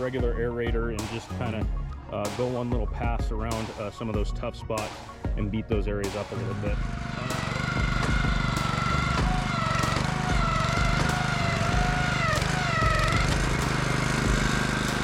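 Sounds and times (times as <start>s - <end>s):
aerator engine droning: 6.0s - 15.0s.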